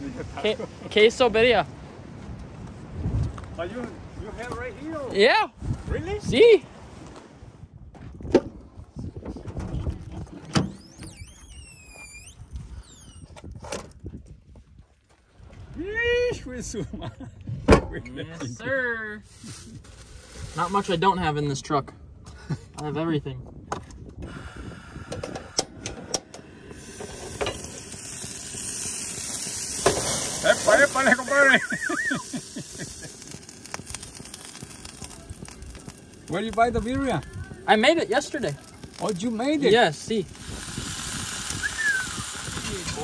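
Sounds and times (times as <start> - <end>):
gas burner hissing: 19.2 - 21.1, 24.2 - 43.0.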